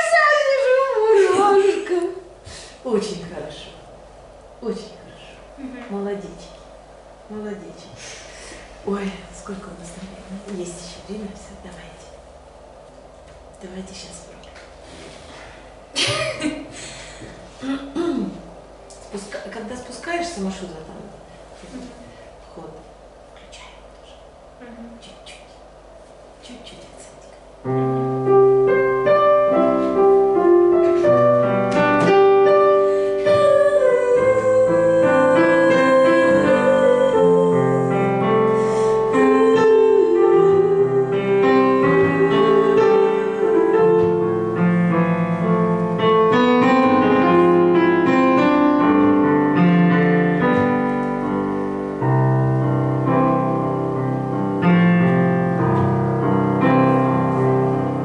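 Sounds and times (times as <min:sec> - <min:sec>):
digital piano jazz chords: 0:27.5 - 0:58.0.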